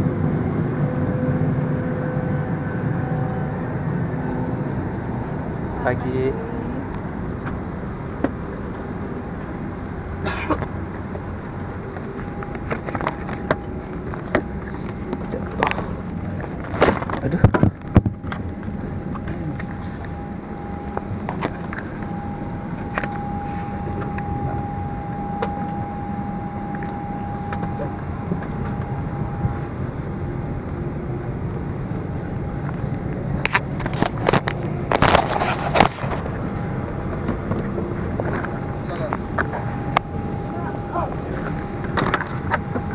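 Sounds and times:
steady rushing cabin noise: 0:00.0 - 0:42.9
faint steady tone: 0:17.2 - 0:33.5, 0:36.4 - 0:42.9.

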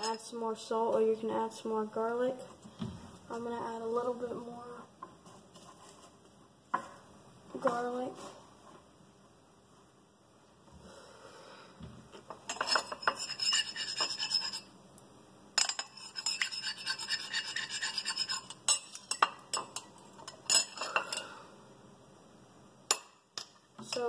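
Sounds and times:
metal spoon stirring in ceramic bowl: 0:12.4 - 0:14.7, 0:15.6 - 0:21.3.

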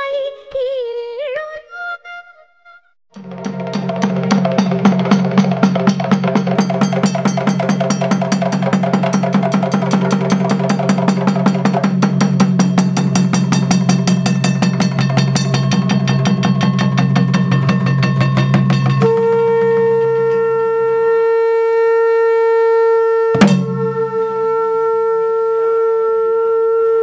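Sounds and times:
fast drum strokes: 0:03.2 - 0:20.7, 0:23.4 - 0:24.6
high steady tone: 0:09.4 - 0:22.6, 0:23.4 - 0:25.0
low steady drone: 0:19.0 - 0:25.8.

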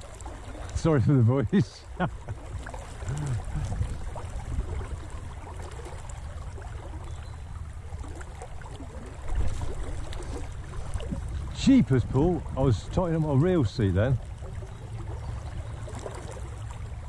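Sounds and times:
river rushing and lapping: 0:00.0 - 0:17.0.

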